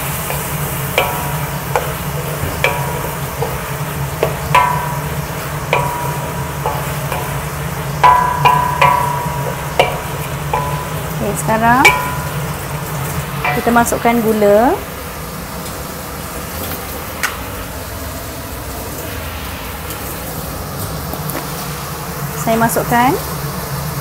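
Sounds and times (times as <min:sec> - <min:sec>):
spatula knocking metal wok: 0:00.0 - 0:14.9
food sizzling in a wok: 0:00.0 - 0:24.0.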